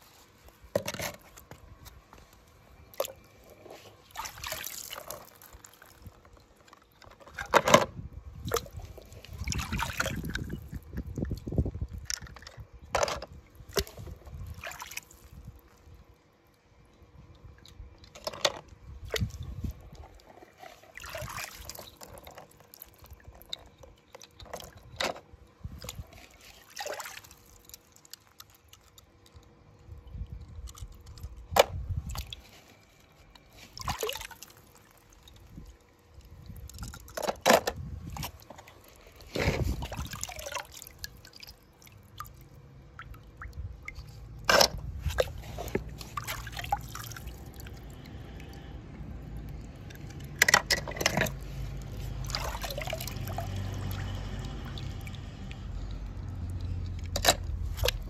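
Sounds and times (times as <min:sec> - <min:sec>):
water splashing and dripping: 0:04.1 - 0:06.4, 0:08.4 - 0:12.6, 0:13.5 - 0:16.0, 0:19.0 - 0:24.9, 0:25.7 - 0:29.4, 0:33.6 - 0:37.4, 0:38.0 - 0:58.0.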